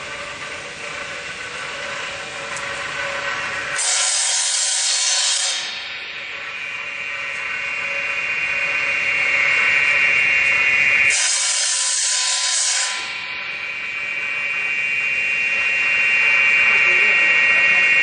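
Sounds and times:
saw blade whining: 0.0s - 18.0s
saw cutting wooden rods: 3.8s - 5.9s, 11.1s - 13.3s.

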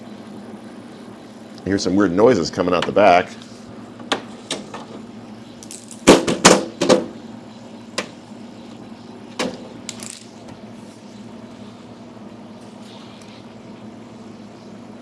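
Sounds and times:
faint steady hum: 0.0s - 15.0s
knocks and clatters on fridge: 6.1s - 7.2s.

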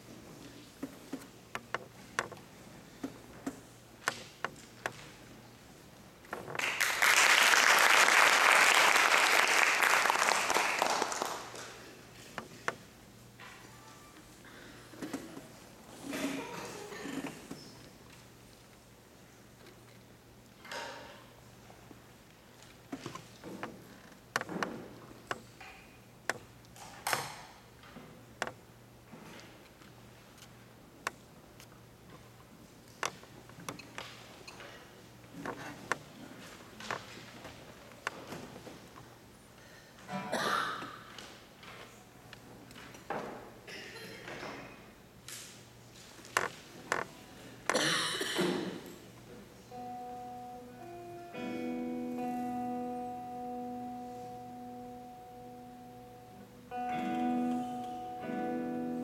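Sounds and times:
audience applauding: 6.6s - 11.9s.

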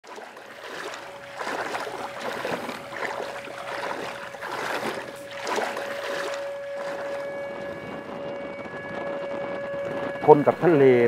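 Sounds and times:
seawater splashing from wading: 0.0s - 7.5s
thin steady tone: 0.1s - 8.2s.

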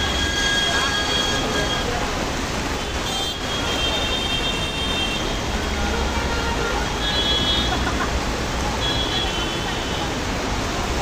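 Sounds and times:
heavy rain: 0.0s - 11.0s
traffic on flooded street: 0.0s - 11.0s.

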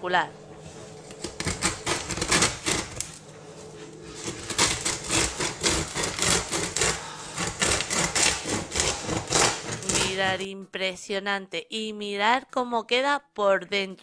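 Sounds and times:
bread knife sawing through crust: 0.6s - 3.2s, 3.9s - 10.4s.

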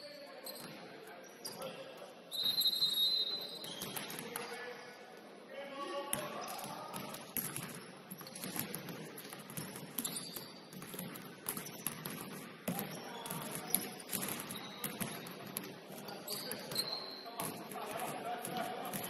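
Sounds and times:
sneaker squeaks: 0.0s - 4.9s, 6.4s - 17.7s
basketball bouncing: 6.9s - 15.8s.

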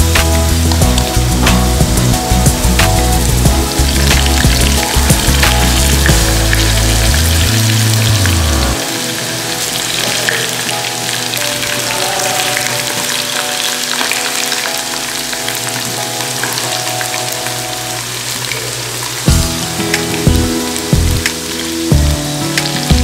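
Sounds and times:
potatoes sizzling in hot oil: 0.0s - 8.2s, 8.8s - 22.9s
bass beat: 0.0s - 8.8s, 19.3s - 21.3s, 21.9s - 22.2s
soft background music: 0.0s - 23.0s.

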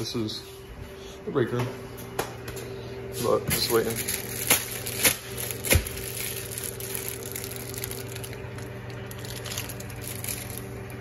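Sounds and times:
microwave oven humming: 0.0s - 11.0s.

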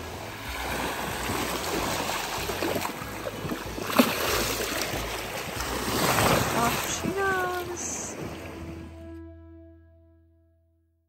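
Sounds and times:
loud sharp splash: 0.0s - 8.3s
splashing in shallow water: 0.0s - 8.9s.

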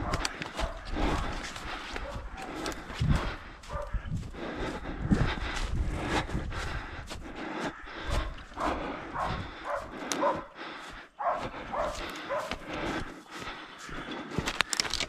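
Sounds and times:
dogs barking: 0.0s - 4.2s, 7.6s - 14.2s
footsteps crunching through snow: 0.0s - 15.0s.

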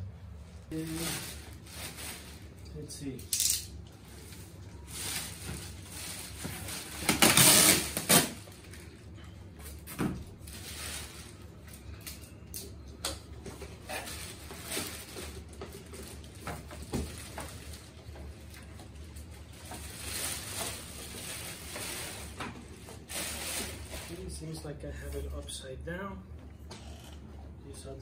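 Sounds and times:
plastic wrapping rustling: 0.4s - 3.2s, 3.9s - 12.3s, 13.5s - 24.6s.

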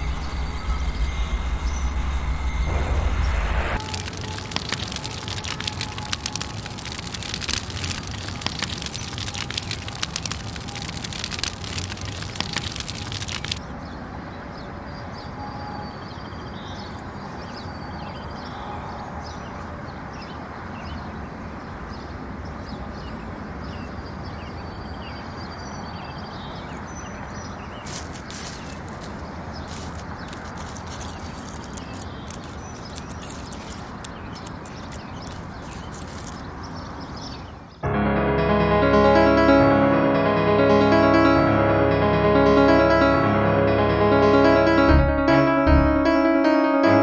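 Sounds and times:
fire crackling: 0.0s - 13.6s, 27.9s - 36.6s
outdoor background noise: 0.0s - 37.9s.

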